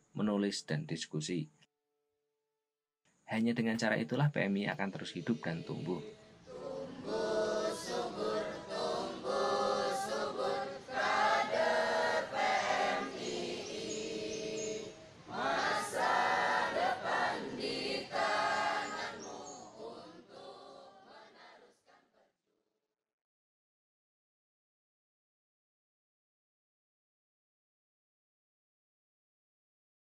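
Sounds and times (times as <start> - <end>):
choir singing: 4.9 - 22.3.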